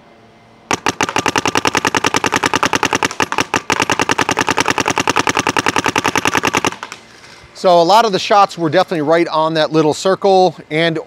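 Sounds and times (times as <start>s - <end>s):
paintball marker firing rapidly: 0.7s - 7.0s.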